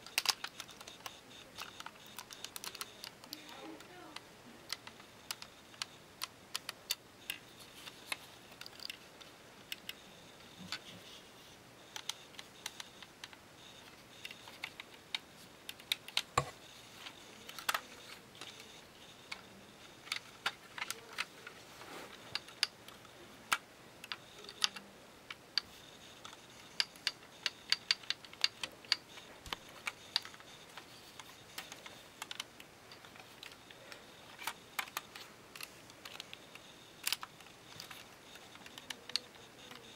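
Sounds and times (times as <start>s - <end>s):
plastic lego clicks: 0.0s - 3.9s, 4.7s - 9.0s, 22.3s - 39.9s.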